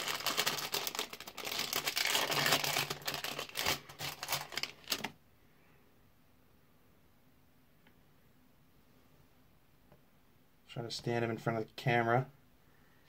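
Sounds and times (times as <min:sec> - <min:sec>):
packaging crumpling and tearing: 0:00.0 - 0:05.2.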